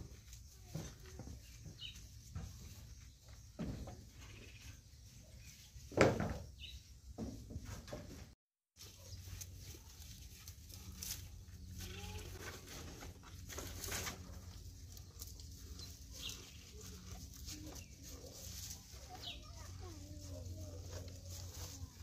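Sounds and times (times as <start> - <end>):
cow munching grass: 8.8 - 22.0.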